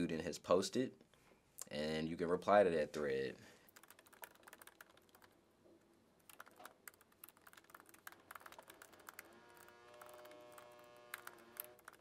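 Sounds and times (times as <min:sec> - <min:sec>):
faint steady hum: 0:00.0 - 0:12.0
typing on laptop keyboard: 0:03.7 - 0:05.4, 0:06.2 - 0:12.0.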